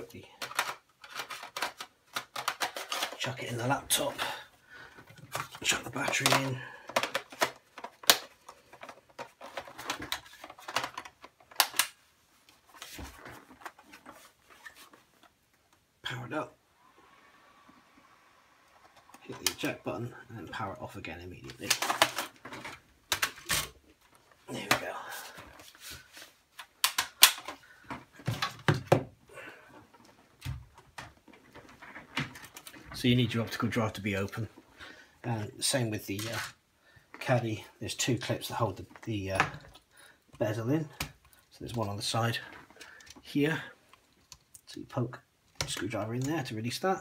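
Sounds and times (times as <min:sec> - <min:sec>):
plastic laptop parts clicking: 0:00.4 - 0:03.2, 0:05.1 - 0:12.0, 0:21.5 - 0:23.8, 0:26.6 - 0:27.6.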